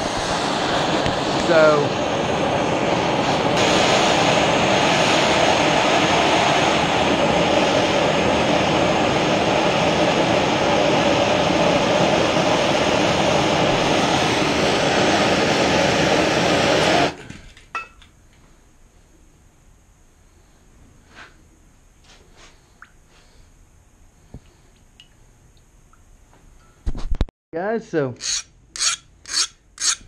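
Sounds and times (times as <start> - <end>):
propane torch hissing: 0.0 - 17.2.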